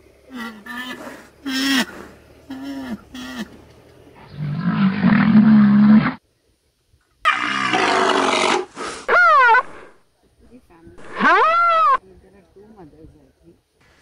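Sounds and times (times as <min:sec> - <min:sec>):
elephants calling: 0:00.3 - 0:03.6, 0:07.3 - 0:10.0, 0:11.0 - 0:12.0
elephant roaring: 0:04.2 - 0:06.2, 0:07.3 - 0:10.0.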